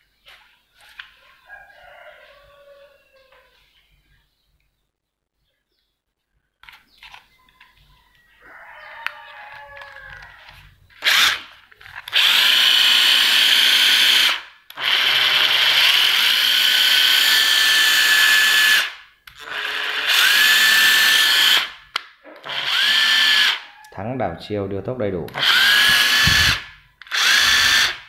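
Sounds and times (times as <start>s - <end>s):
impact driver motor spinning: 9.5s - 23.7s, 25.3s - 28.0s.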